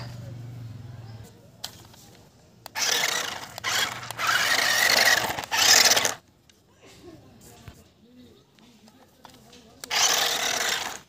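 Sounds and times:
toy car motors whirring: 0:01.2 - 0:06.2, 0:09.8 - 0:11.0.

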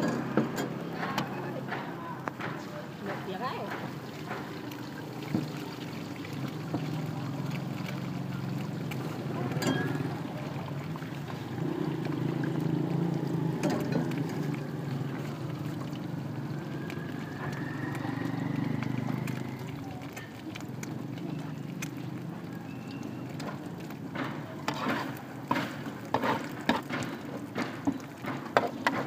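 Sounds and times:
egg frying in oil: 0:00.0 - 0:29.0
low engine-like hum: 0:04.0 - 0:25.4.

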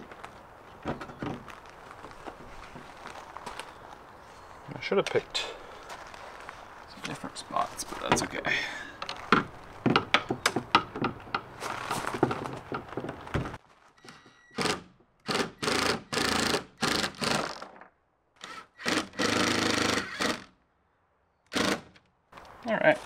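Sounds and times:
power driver driving screws: 0:14.1 - 0:17.8, 0:18.4 - 0:20.5, 0:21.5 - 0:22.0.

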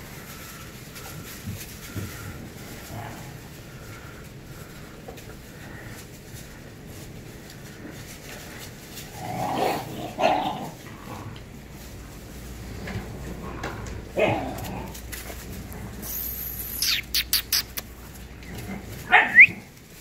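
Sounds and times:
puppies barking: 0:19.0 - 0:19.5.

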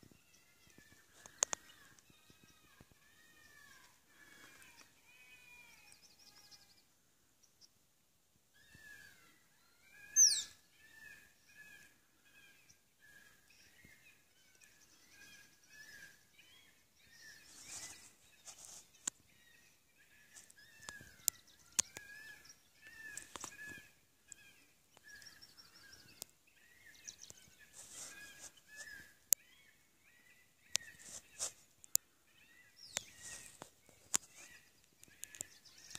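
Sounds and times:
bird-like chirping calls: 0:10.0 - 0:10.6.

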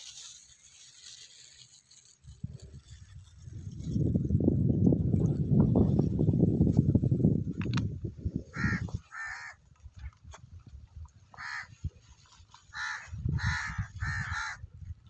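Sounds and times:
crow cawing: 0:08.5 - 0:09.6, 0:11.4 - 0:11.7, 0:12.7 - 0:14.6.

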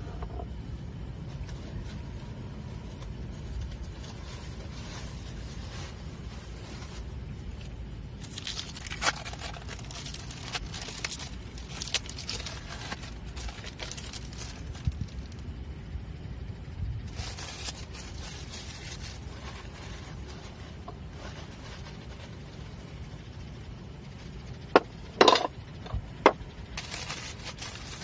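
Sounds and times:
wind rumble on microphone: 0:13.3 - 0:15.7, 0:16.4 - 0:21.8.

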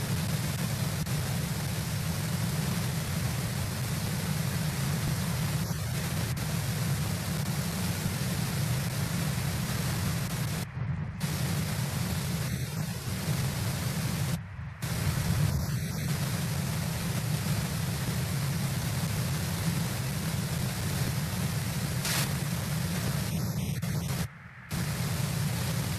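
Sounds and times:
steady hiss: 0:00.0 - 0:25.9
low rumble: 0:10.6 - 0:11.3.

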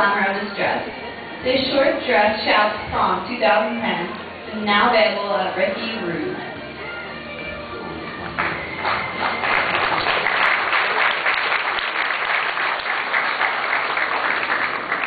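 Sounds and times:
audience applauding: 0:08.2 - 0:15.0.

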